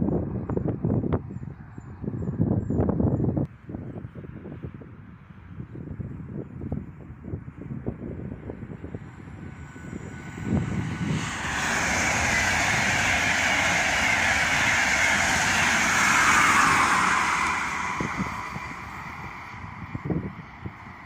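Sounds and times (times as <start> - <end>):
passenger train passing: 7.6 - 21.0.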